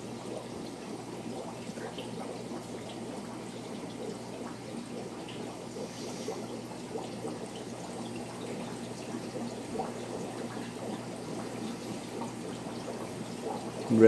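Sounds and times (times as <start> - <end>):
aquarium water trickling: 0.0 - 14.0.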